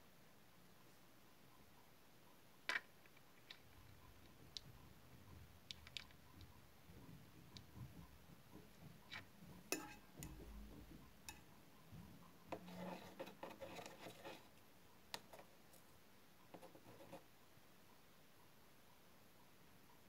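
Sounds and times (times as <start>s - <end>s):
soft rubbing and scratching: 11.9s - 14.6s, 15.3s - 17.3s.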